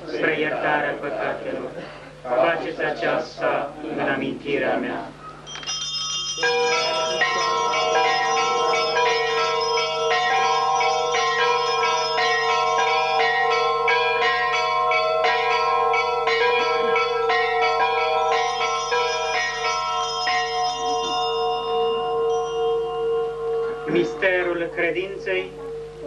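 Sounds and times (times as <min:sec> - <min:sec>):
bells ringing: 0:05.4 - 0:26.0.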